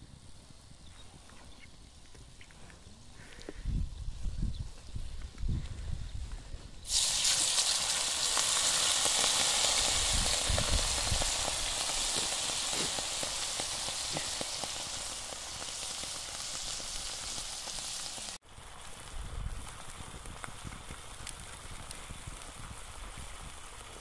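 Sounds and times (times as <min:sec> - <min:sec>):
crackles: 0:00.0 - 0:03.7, 0:04.7 - 0:24.0
liquid hissing and sizzling in pan: 0:06.8 - 0:24.0.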